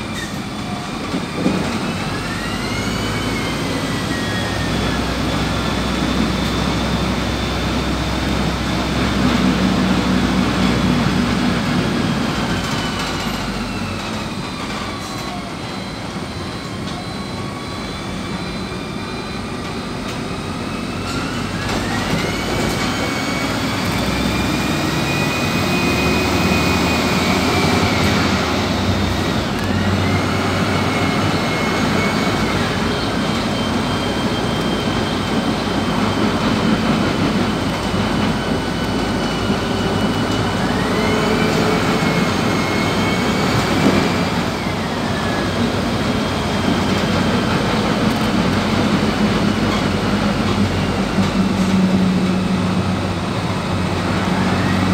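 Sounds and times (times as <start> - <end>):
bus engine droning: 0.0 - 54.9
high whine rising and falling: 15.6 - 54.9.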